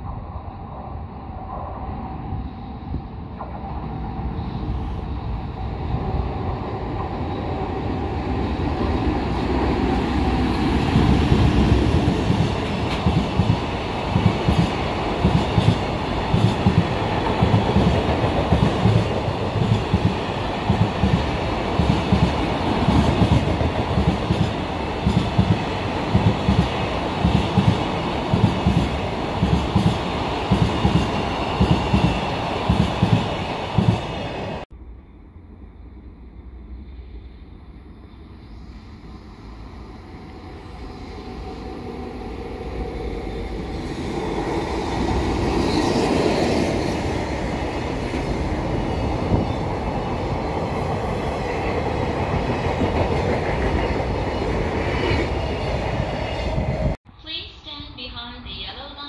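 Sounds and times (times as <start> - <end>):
train wheels clacking on rails: 10.9 - 34.6.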